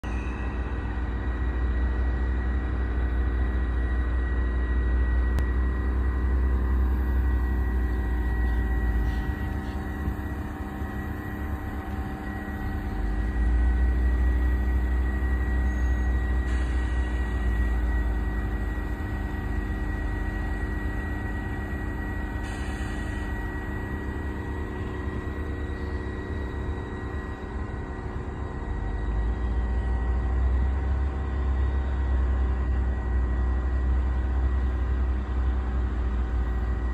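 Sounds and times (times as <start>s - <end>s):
machinery hum: 0.0s - 36.9s
heavy low rumble: 5.1s - 31.7s.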